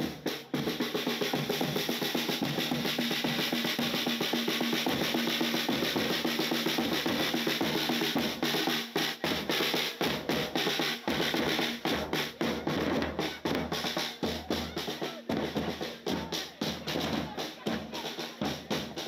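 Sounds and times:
bass drum beats: 0.0 - 19.0
snare drum rolls: 0.0 - 19.0.

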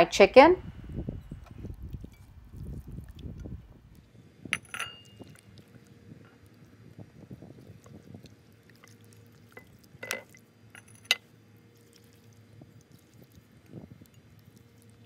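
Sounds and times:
wet squishing of oiled chicken: 1.6 - 4.2, 5.2 - 10.6, 11.2 - 15.0
sharp clink: 4.6 - 5.2.

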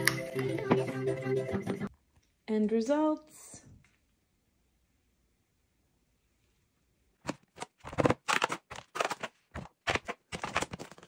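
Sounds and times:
plastic tray scraping and clattering: 7.3 - 11.0.

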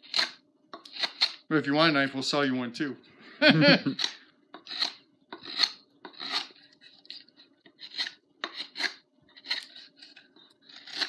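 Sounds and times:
blade scraping wood: 0.0 - 1.5, 3.9 - 11.0.

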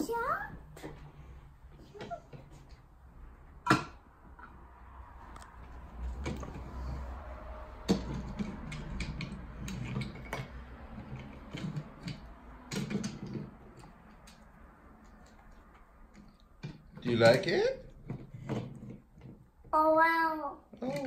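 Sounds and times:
toy vehicles clicking on wooden track: 7.9 - 19.5.

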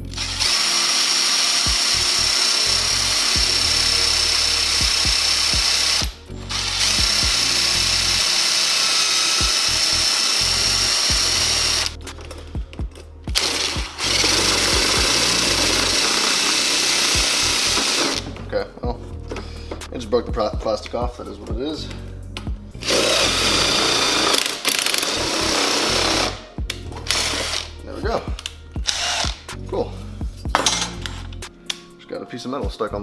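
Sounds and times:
power drill whining: 0.0 - 12.0, 13.3 - 18.3, 22.8 - 26.4, 27.1 - 27.8, 28.4 - 29.4.

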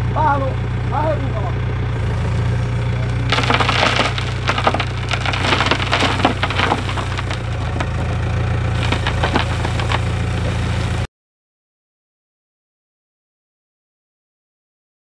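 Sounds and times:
diesel engine running: 0.0 - 11.1
dirt and stones pouring: 3.2 - 11.1.

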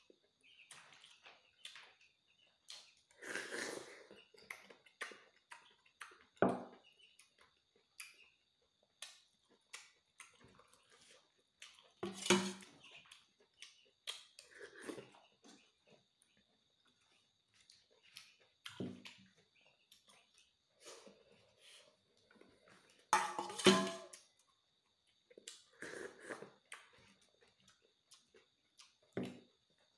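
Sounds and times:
wet chewing and lip smacks: 7.2 - 12.0, 13.0 - 15.2, 25.1 - 29.1.

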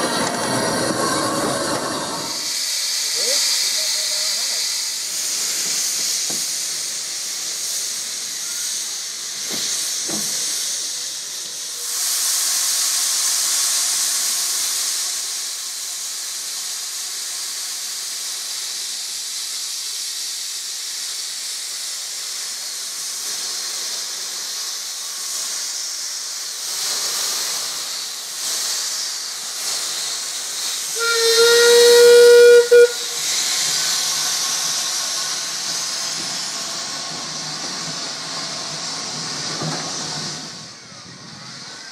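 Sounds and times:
steam locomotive hissing: 0.0 - 41.9
steam whistle blast: 30.9 - 33.4.

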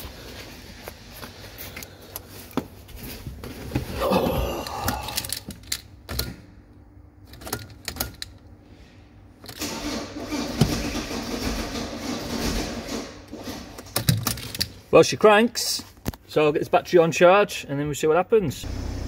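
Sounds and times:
diesel engine cranking: 9.4 - 13.4.

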